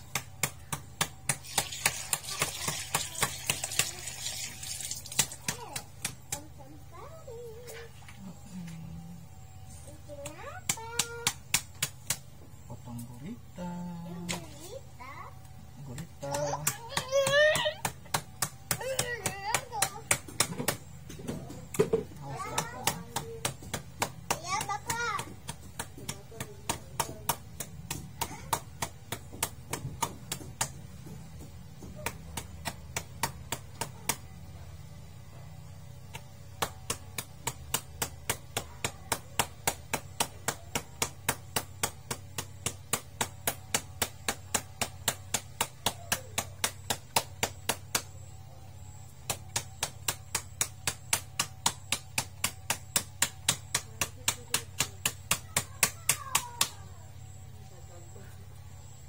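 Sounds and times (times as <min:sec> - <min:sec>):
wooden stick pounding on board: 0:00.0 - 0:04.0, 0:16.0 - 0:34.3, 0:36.1 - 0:48.2, 0:49.2 - 0:56.8.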